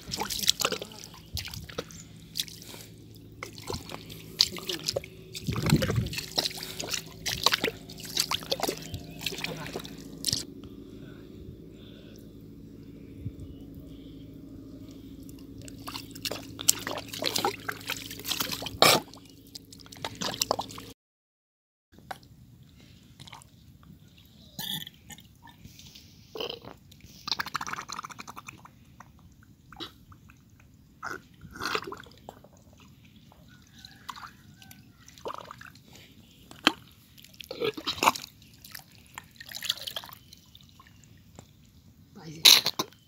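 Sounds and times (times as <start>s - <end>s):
wet mud squelches: 0.0s - 10.9s, 14.8s - 20.9s, 26.8s - 41.8s.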